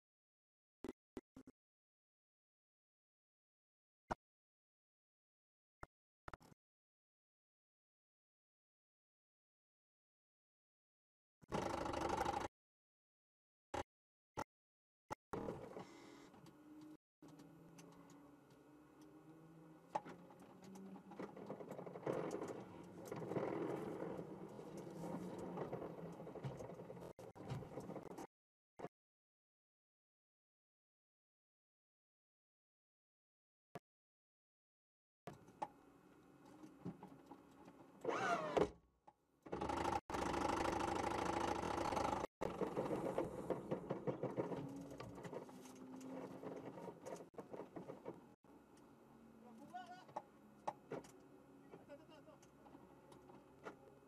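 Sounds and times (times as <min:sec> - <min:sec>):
race car drivetrain whirring: 0:16.6 - 0:27.1, 0:39.5 - 0:48.3.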